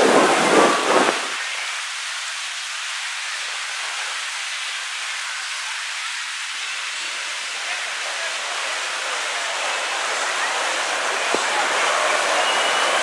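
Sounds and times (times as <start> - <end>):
water gushing into splash pool: 0.0 - 13.0.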